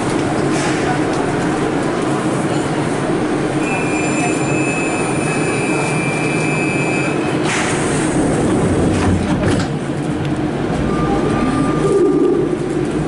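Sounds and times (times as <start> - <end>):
train doors sliding shut: 3.8 - 10.0.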